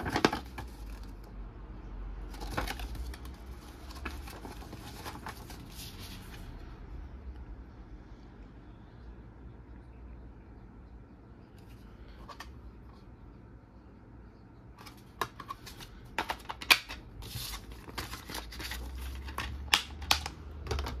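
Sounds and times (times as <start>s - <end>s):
plastic rubbing sounds: 0.0s - 1.3s, 2.3s - 6.6s, 14.8s - 21.0s.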